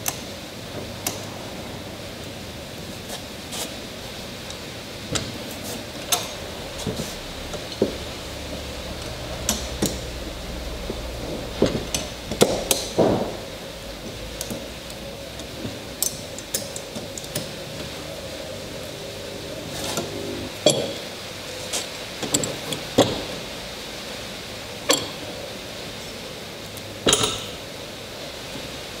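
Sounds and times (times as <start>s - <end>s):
metal clamps clinking and knocking: 27.1s - 27.6s.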